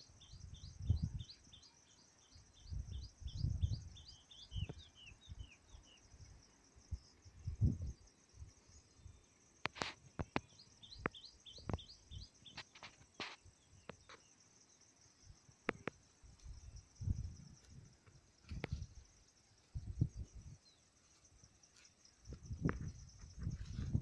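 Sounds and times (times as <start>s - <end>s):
bird chirping: 0.0s - 17.6s
insects buzzing: 0.0s - 24.0s
wind rumble on microphone: 0.3s - 1.4s, 2.6s - 5.6s, 6.9s - 9.2s, 15.7s - 19.1s, 19.7s - 20.7s, 22.2s - 24.0s
sharp clicks: 15.6s - 16.0s.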